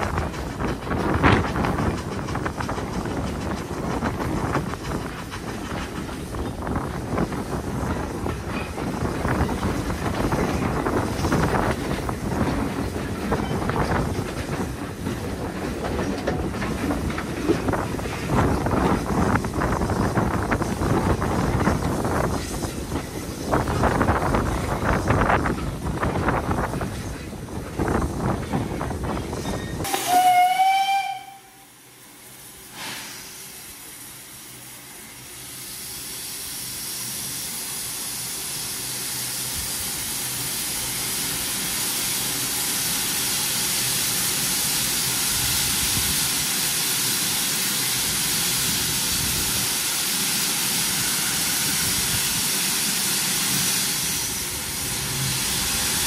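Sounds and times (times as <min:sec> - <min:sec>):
hiss of escaping steam: 0:29.3 - 0:56.0
steam locomotive whistle: 0:29.8 - 0:31.8.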